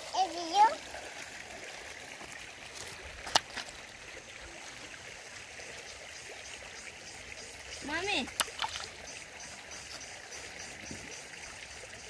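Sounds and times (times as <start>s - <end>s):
running water: 0.0s - 12.0s.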